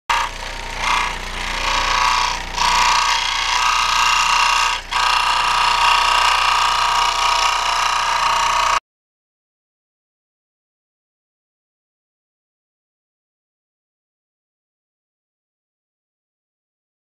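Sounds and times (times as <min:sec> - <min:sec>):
scroll saw cutting: 0:00.1 - 0:08.8.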